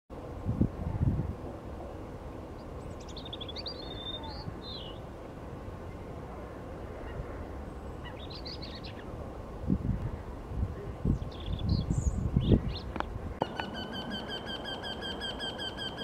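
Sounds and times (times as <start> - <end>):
robin singing: 2.6 - 5.1, 7.7 - 9.1, 11.1 - 16.0.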